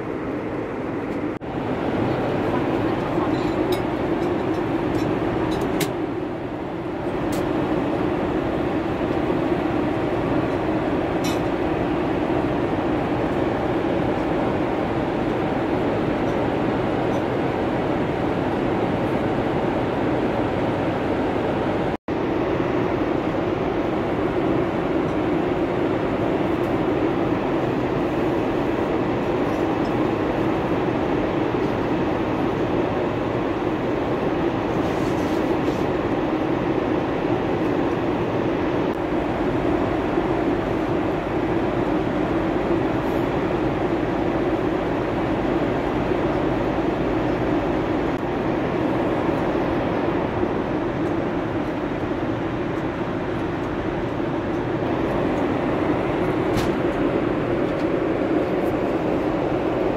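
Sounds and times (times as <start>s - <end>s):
airplane cabin noise: 0.0s - 59.9s.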